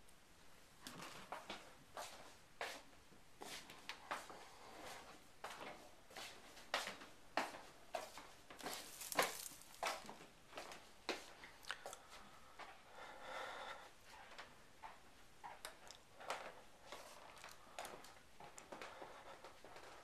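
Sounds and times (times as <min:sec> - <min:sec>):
soft footsteps on wooden floor: 0:00.8 - 0:12.8, 0:16.2 - 0:20.0
light handling noises: 0:07.4 - 0:10.8.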